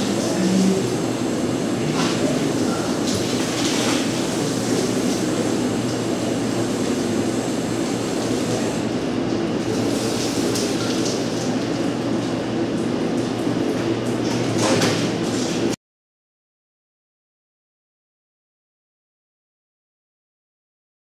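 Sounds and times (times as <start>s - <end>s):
water spraying from hose: 0.0s - 13.5s
low machine hum: 0.0s - 15.8s.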